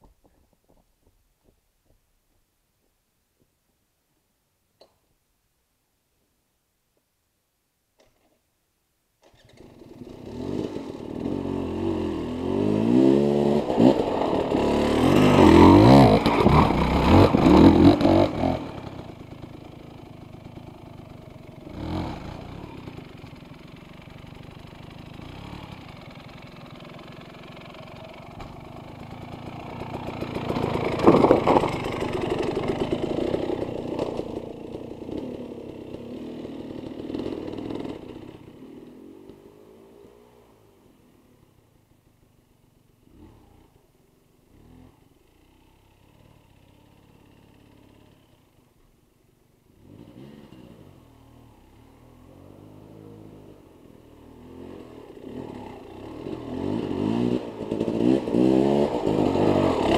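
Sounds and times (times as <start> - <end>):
dirt bike engine revving: 9.7 - 20.3, 21.0 - 23.3, 54.3 - 59.9.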